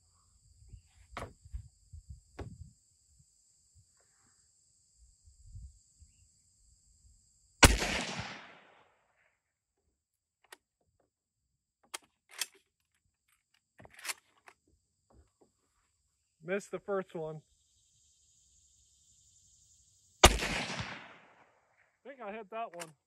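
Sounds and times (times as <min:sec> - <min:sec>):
insects chirping: 0:00.0 - 0:23.0
rifle shot with echo: 0:07.6 - 0:08.8, 0:20.2 - 0:21.4.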